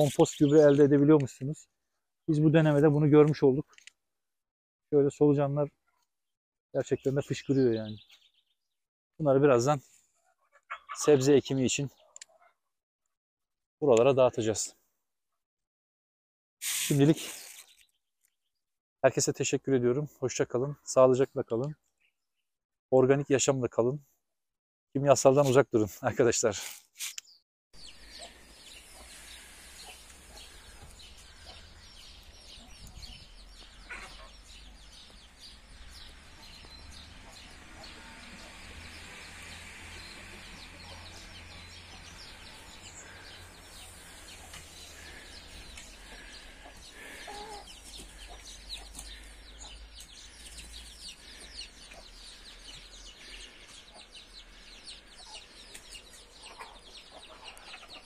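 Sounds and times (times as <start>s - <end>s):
hens clucking: 10.6s - 11.2s, 42.5s - 49.8s.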